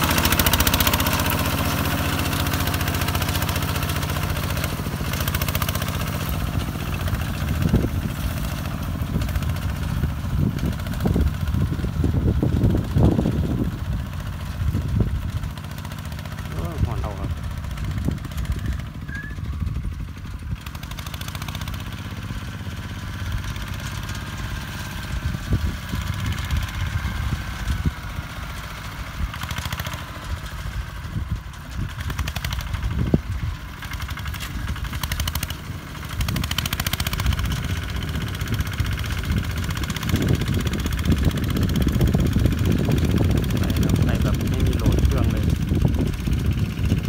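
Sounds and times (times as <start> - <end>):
tractor engine under load: 0.0 - 47.0.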